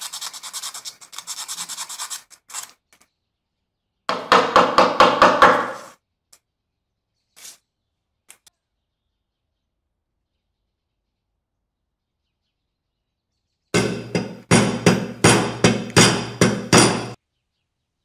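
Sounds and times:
sandpaper rubbing metal: 0:00.0 - 0:02.8
sharp knocks: 0:04.1 - 0:05.9, 0:13.8 - 0:17.2.

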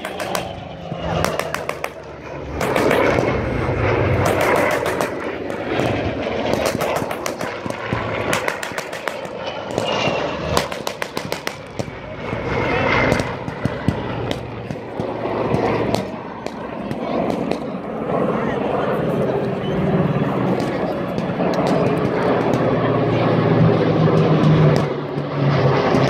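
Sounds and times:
simulated gunfire bangs: 0:00.0 - 0:02.0, 0:02.6 - 0:12.0
pyrotechnic explosions: 0:00.0 - 0:18.0
propeller plane engine overhead: 0:00.0 - 0:26.0.

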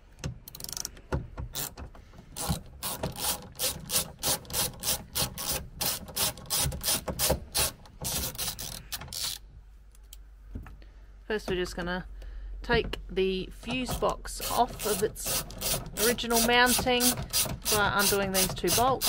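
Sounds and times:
socket ratchet clicking: 0:00.2 - 0:09.4, 0:14.0 - 0:19.0.

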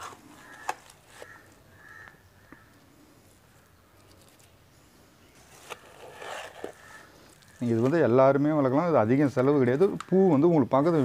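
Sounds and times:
wet soil squelching: 0:05.7 - 0:08.5.

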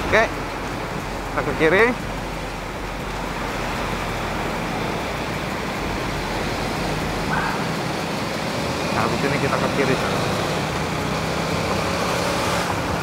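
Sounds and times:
motorcycle engine running: 0:00.0 - 0:13.0
road noise: 0:00.0 - 0:13.0.

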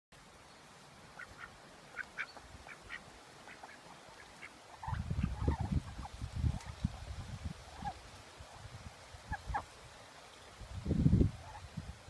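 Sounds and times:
ducks quacking: 0:01.2 - 0:06.8.

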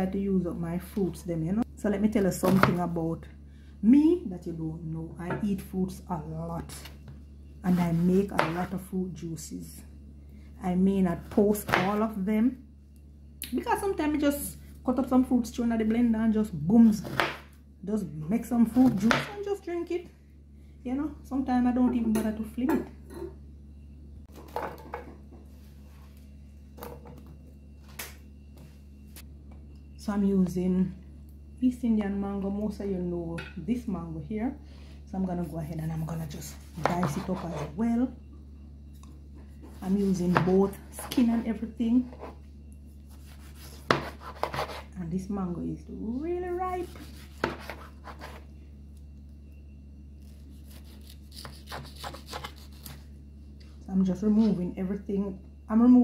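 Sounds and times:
steady low hum: 0:00.0 - 0:56.0
knife slicing mango: 0:43.1 - 0:44.9, 0:50.2 - 0:53.0.

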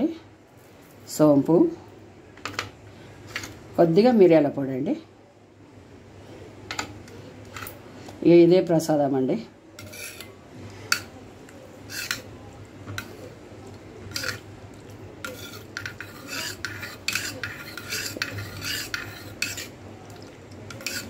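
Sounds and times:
spoon scraping and clinking a bowl: 0:09.8 - 0:11.1, 0:11.9 - 0:12.3, 0:14.1 - 0:14.5, 0:15.2 - 0:19.8, 0:20.7 - 0:21.0.

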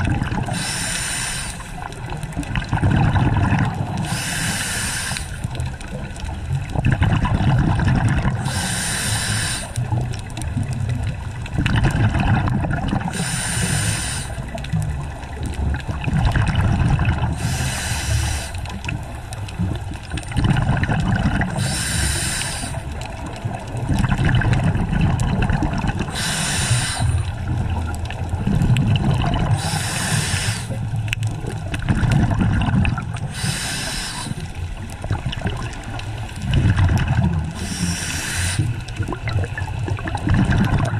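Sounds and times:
exhaled bubbles rumbling: 0:00.0 - 0:40.9
regulator breathing hiss: 0:00.5 - 0:01.9, 0:04.0 - 0:05.6, 0:08.4 - 0:09.9, 0:13.1 - 0:14.5, 0:17.4 - 0:18.7, 0:21.6 - 0:22.9, 0:26.1 - 0:27.4, 0:29.6 - 0:30.8, 0:33.3 - 0:34.6, 0:37.5 - 0:38.9.

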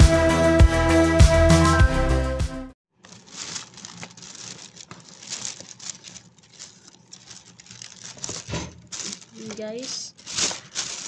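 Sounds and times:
plastic bag crinkling and rustling: 0:02.9 - 0:11.0
cardboard boxes shifting: 0:03.1 - 0:11.0.

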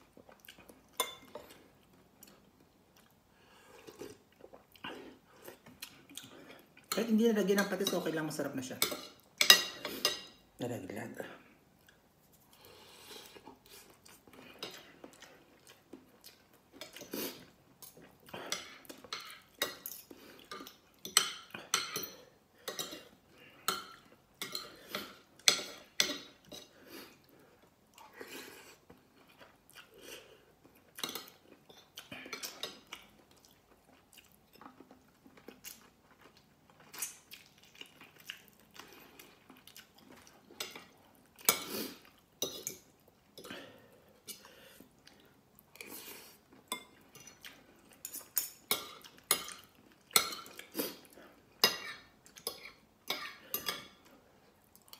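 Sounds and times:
close-up chewing: 0:22.7 - 0:43.6
cutlery clinking on a plate: 0:51.6 - 0:54.0.

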